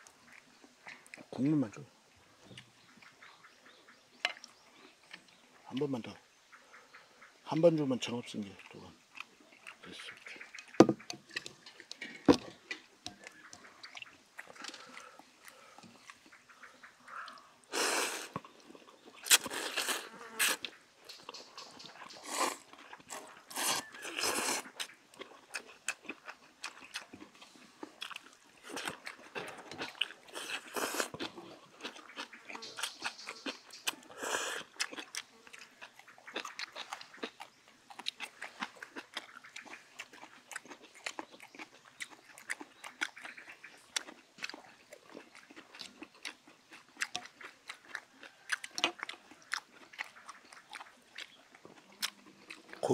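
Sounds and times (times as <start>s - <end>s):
noodles being slurped: 19.2s - 20.6s, 22.2s - 24.8s.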